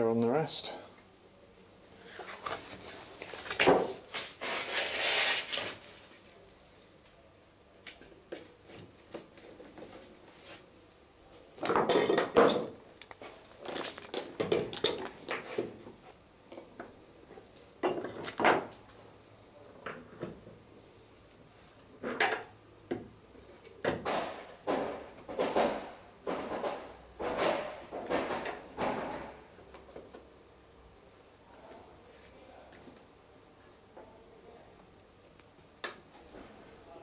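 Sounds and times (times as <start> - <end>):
metal clamps clattering and clicking: 11.6 - 15.4.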